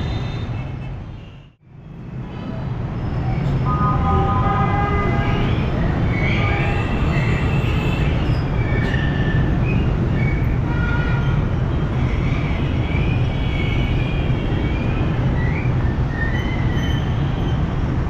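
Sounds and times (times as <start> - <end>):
traffic engines rumbling: 0.0 - 18.0
vehicle horns: 3.6 - 8.2, 10.7 - 11.5.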